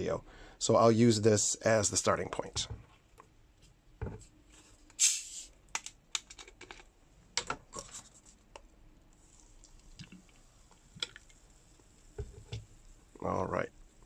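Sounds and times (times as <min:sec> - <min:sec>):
soda hissing while poured: 0:05.0 - 0:05.6.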